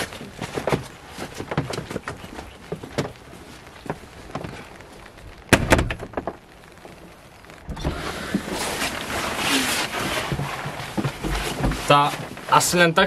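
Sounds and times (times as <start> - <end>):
light footsteps: 0.0 - 12.9
steady background hiss: 0.0 - 13.0
wooden door shutting: 5.5 - 6.4.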